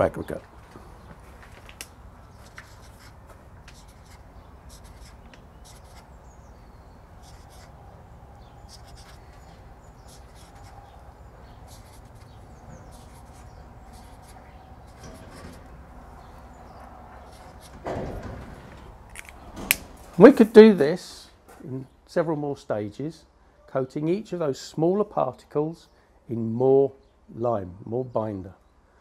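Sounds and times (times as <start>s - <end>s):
marker scratching on paper: 2.3s - 6.4s, 7.2s - 7.8s, 8.6s - 15.7s, 17.2s - 17.8s.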